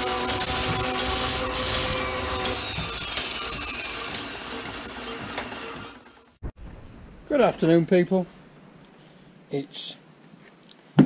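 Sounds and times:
machine whirring: 0.0s - 6.5s
high whine: 0.0s - 7.5s.

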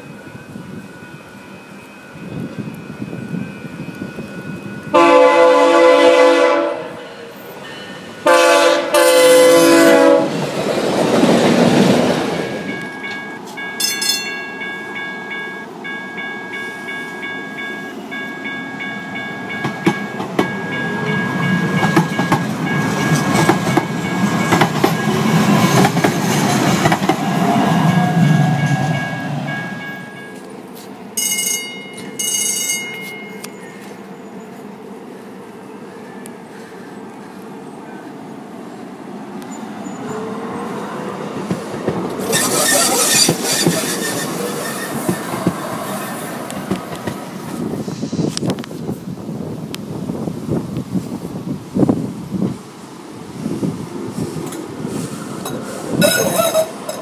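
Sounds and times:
light rail train whine and rumble: 0.0s - 57.0s
train rushing past: 0.0s - 57.0s
locomotive air horn blasts: 4.9s - 7.4s, 8.2s - 10.4s, 55.9s - 56.7s.

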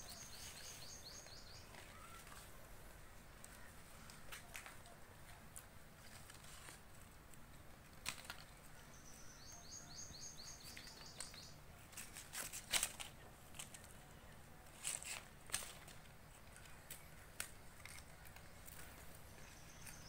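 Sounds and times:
leaves and twigs snapping: 3.4s - 8.6s, 10.6s - 14.0s, 14.7s - 20.0s.

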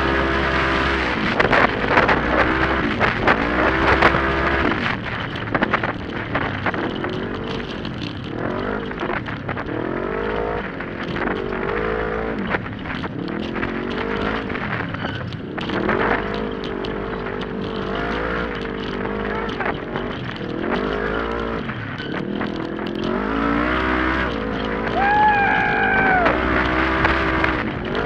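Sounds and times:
knocks and rattles of vehicle: 0.0s - 28.0s
engine revving hard: 22.5s - 28.0s.

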